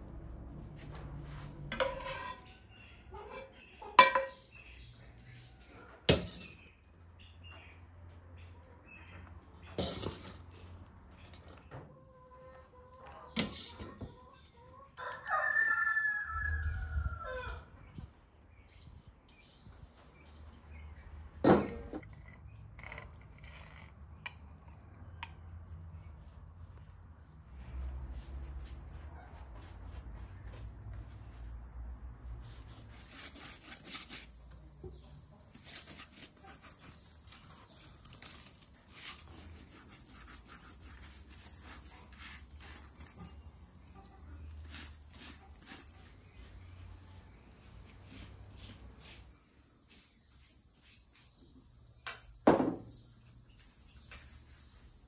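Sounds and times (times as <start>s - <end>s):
insects trilling: 27.4s - 55.0s
sharp knock: 52.4s - 52.9s.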